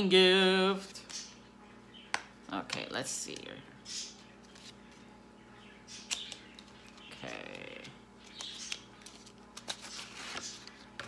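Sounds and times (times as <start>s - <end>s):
cardboard packaging rustling: 8.4s - 11.0s.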